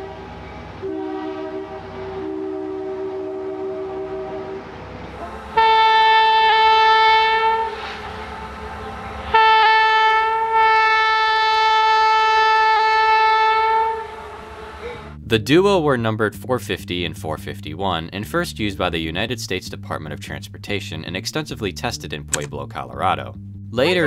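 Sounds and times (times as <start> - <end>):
train air horn blasts: 0.0 - 15.2
train rumbling: 0.0 - 15.4.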